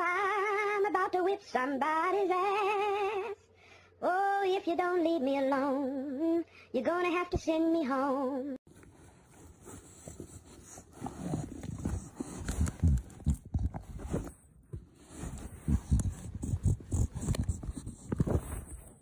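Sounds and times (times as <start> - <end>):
animal puffing in cardboard box: 8.8 - 19.0.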